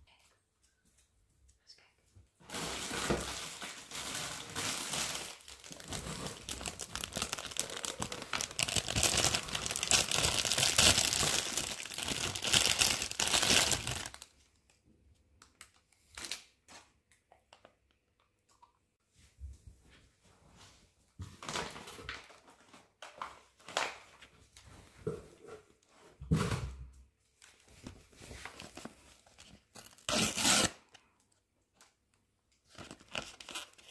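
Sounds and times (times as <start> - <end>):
plastic bag crinkling: 2.5 - 14.4.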